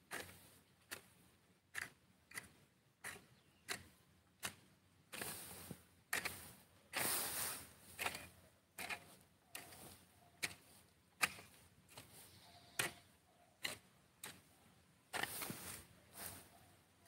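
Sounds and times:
hoe chopping and scraping soil: 0.0s - 16.6s.

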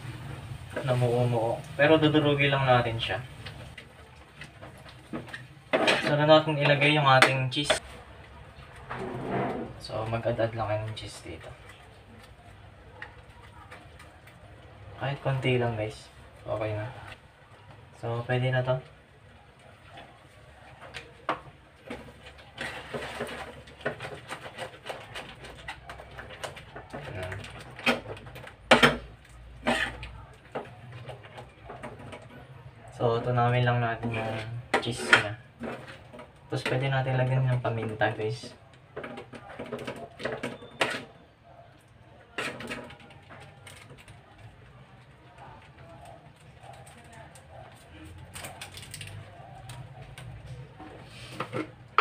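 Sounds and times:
spatula scraping frying pan: 8.9s - 9.9s, 21.9s - 32.3s, 34.0s - 36.8s.

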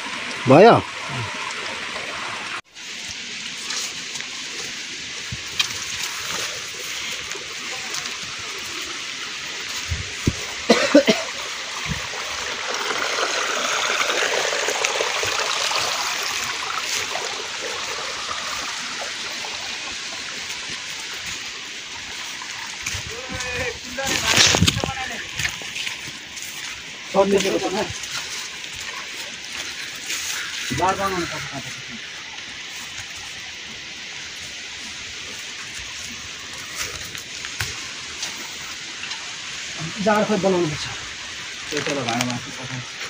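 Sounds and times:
water pouring into plastic bottle: 22.1s - 26.2s.

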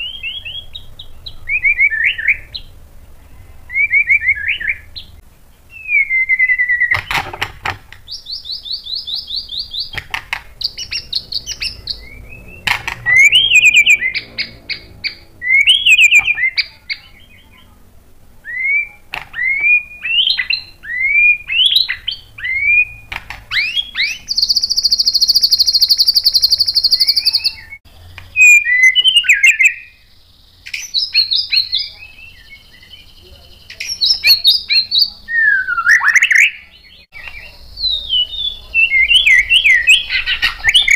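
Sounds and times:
bird singing trills and whistles: 0.0s - 2.7s, 3.3s - 7.4s, 8.0s - 17.7s, 18.4s - 40.9s
sharp clicks: 9.9s - 11.7s.

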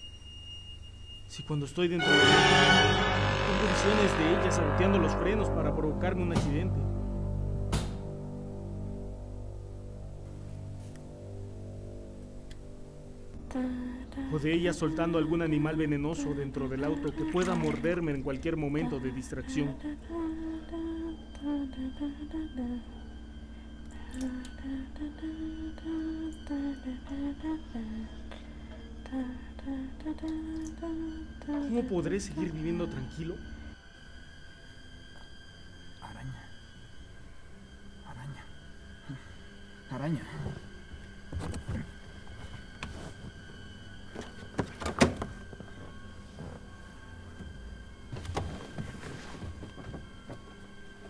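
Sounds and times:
steady low drone: 2.0s - 33.9s
woman humming: 23.9s - 28.3s.

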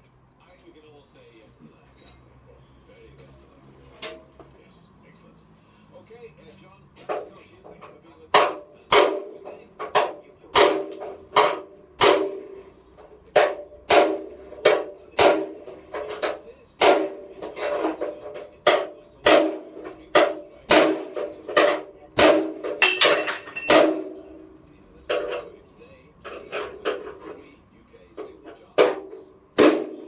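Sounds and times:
hammer striking steel punch: 8.3s - 12.7s, 13.3s - 18.0s, 18.6s - 24.4s, 28.8s - 30.0s.

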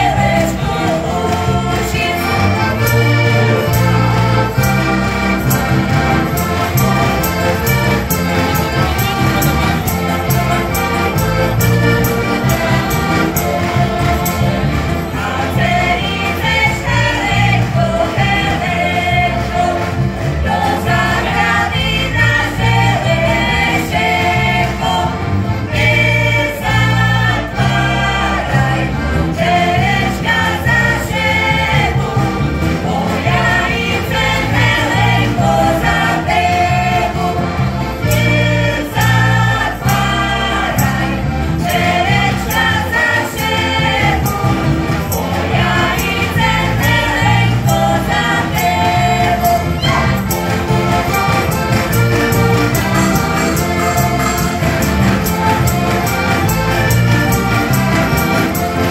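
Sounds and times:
acoustic guitar: 0.0s - 58.9s
bass guitar: 0.0s - 58.9s
button accordions playing: 0.0s - 58.9s
voices singing together: 0.0s - 58.9s.

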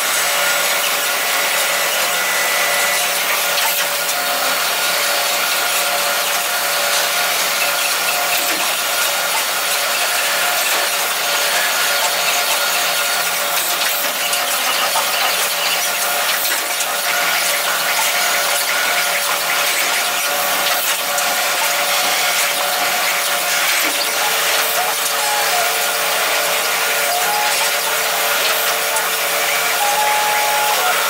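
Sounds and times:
hissing metal cutting noise: 0.0s - 31.0s
low machine tone: 18.4s - 31.0s
high-pitched spindle squeal: 18.7s - 31.0s.

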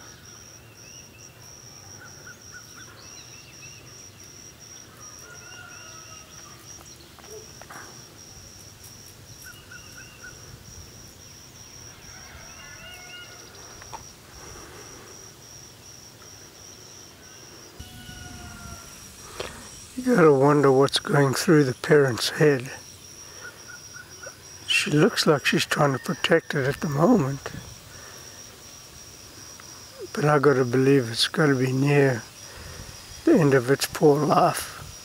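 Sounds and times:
insect trilling: 0.0s - 35.0s
bird chirps: 9.4s - 10.4s.

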